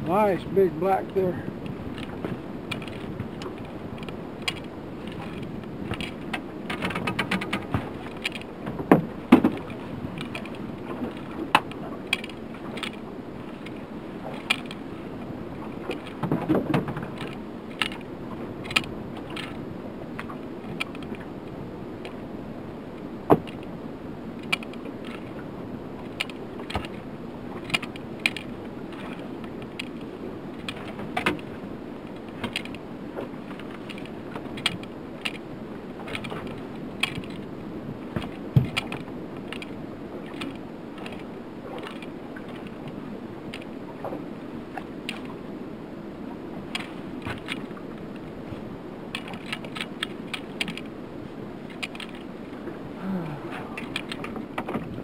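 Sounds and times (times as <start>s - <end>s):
water washing against boat: 0.0s - 55.0s
fishing tackle clicks and knocks: 1.6s - 13.0s, 13.6s - 14.8s, 15.6s - 19.6s, 20.2s - 21.3s, 23.3s - 23.7s, 24.4s - 25.3s, 26.0s - 27.0s, 27.6s - 37.5s, 38.1s - 44.2s, 44.8s - 45.4s, 46.7s - 48.3s, 49.1s - 50.9s, 51.6s - 52.3s, 53.6s - 55.0s.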